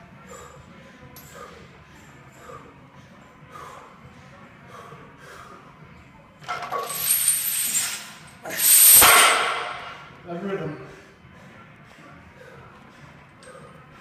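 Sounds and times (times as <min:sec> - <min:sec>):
barbell chains rasping: 0:06.5 - 0:10.0.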